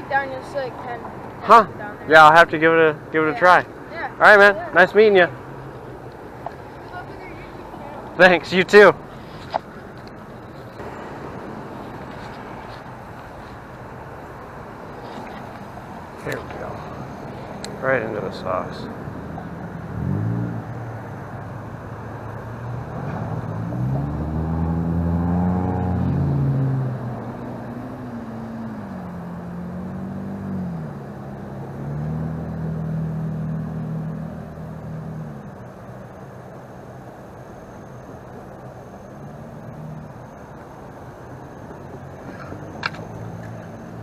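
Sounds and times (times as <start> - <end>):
vehicle engine driving by: 0.0 - 44.0.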